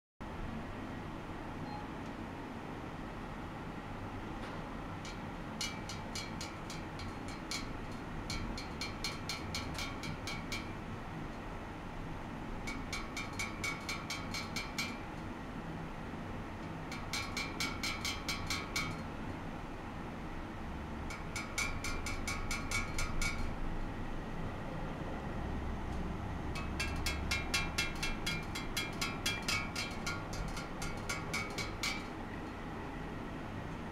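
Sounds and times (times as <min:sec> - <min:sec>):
equipment hum and hiss: 0:00.2 - 0:33.9
light metallic ticks with ring: 0:05.0 - 0:10.7, 0:21.1 - 0:23.6, 0:26.6 - 0:32.1.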